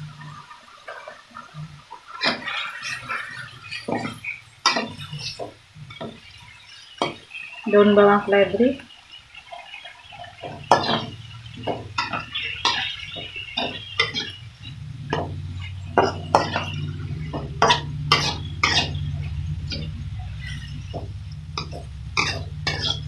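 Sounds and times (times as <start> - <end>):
metal spatula scraping a wok: 2.2 - 7.6, 10.1 - 23.0
low steady hum: 10.1 - 23.0.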